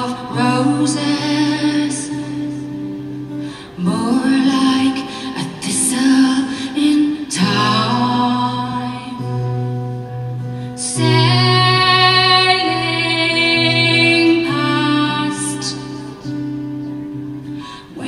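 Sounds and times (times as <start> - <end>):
woman singing slow ballad: 0.0 - 18.0.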